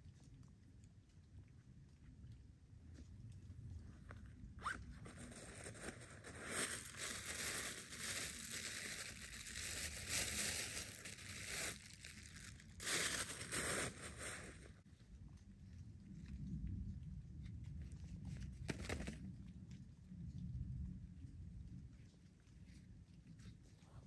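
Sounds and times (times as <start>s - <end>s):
hands scraping mushroom: 5.0s - 14.6s.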